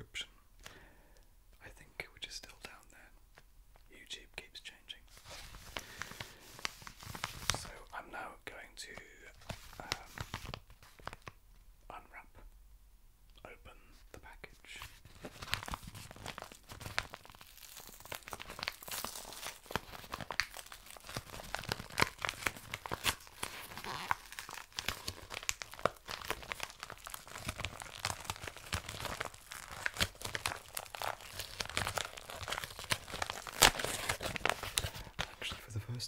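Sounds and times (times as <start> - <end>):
package wrapping tearing and crinkling: 15.0 - 35.6.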